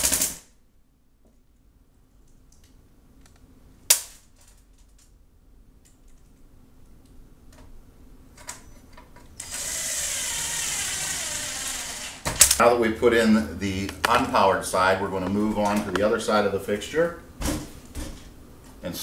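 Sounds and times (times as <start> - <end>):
cordless drill driving screw: 9.4 - 12.4.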